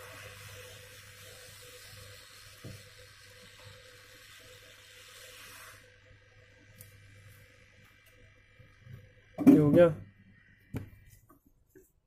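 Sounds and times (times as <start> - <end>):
hot-air gun hissing: 0.0 - 6.0.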